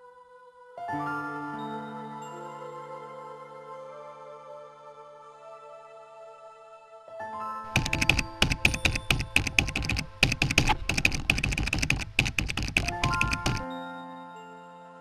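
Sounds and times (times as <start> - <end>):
soft ambient music: 0.0 - 15.0
rapid keyboard typing: 7.7 - 13.6.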